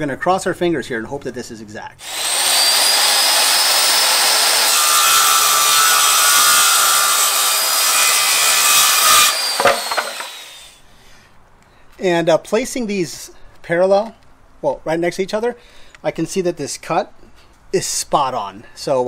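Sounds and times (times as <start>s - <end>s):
circular saw cutting wood: 2.0s - 10.8s
motor winding down: 2.0s - 10.8s
knocks: 9.6s - 10.3s.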